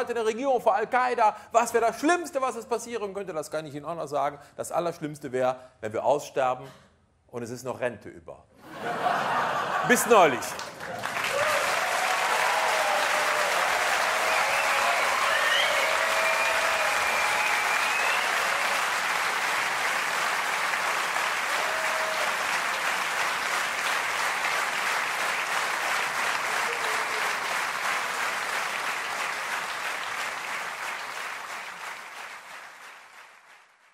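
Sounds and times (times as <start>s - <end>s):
audience applauding: 8.9s - 33.9s.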